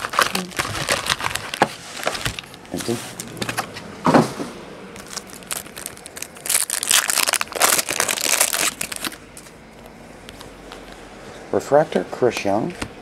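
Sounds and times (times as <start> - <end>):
foil wrapper crinkling: 0.0 - 3.7, 5.0 - 9.6.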